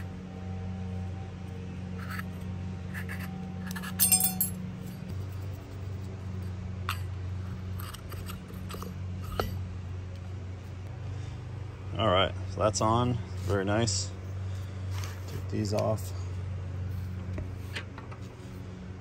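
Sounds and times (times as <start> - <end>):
steady low hum: 0.0 - 19.0
metal tools clinking: 3.6 - 5.0.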